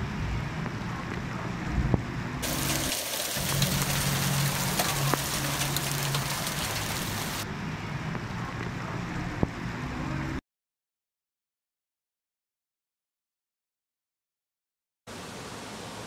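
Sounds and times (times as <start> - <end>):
heavy rain pouring: 2.4 - 7.4
sharp raindrop impacts: 2.4 - 7.4.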